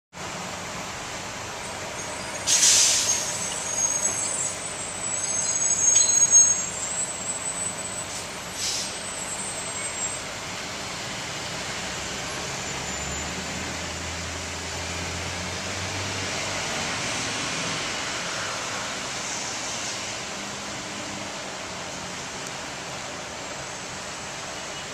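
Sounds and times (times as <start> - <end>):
traffic rumble: 0.1 - 24.9
high brake squeals: 1.6 - 10.5, 12.0 - 14.2
air-brake hiss: 2.3 - 7.2, 8.0 - 9.6.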